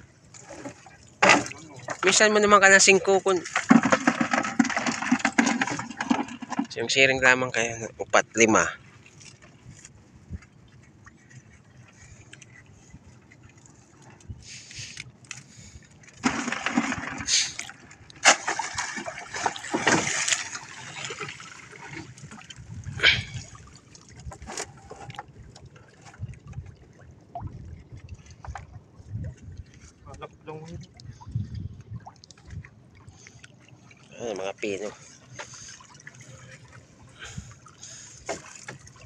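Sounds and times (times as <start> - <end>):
water splashing and pouring: 0.3 - 6.9, 12.8 - 29.9.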